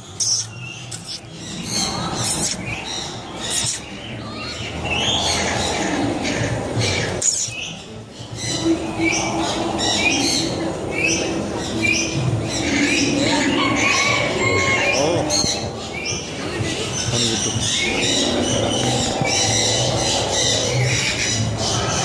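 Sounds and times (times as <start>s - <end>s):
parrot whistles chirps and clicks: 0.2s - 1.3s, 2.2s - 2.7s, 3.5s - 3.9s.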